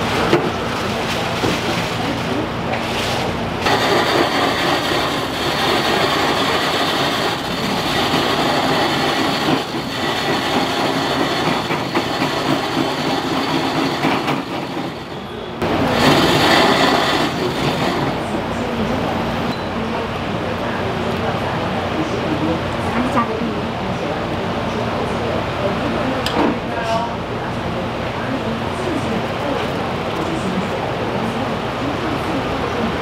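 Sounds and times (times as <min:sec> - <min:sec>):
ice shaving machine grinding: 0:00.0 - 0:18.4.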